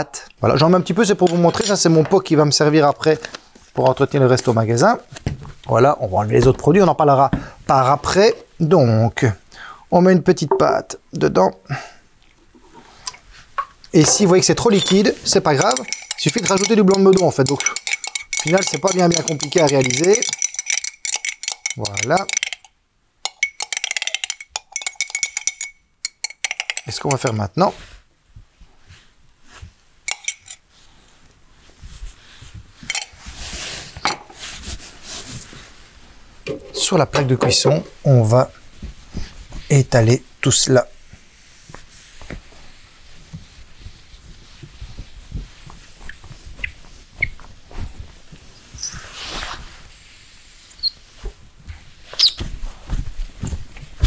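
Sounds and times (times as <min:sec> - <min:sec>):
metal spoon clinking glass jar: 0:01.2 - 0:01.9, 0:14.0 - 0:27.4, 0:30.1 - 0:30.6, 0:32.9 - 0:33.2
cloth rubbing rustle: 0:41.1 - 0:54.0
sponge squeaking on glass: 0:50.8 - 0:51.1, 0:52.2 - 0:52.5.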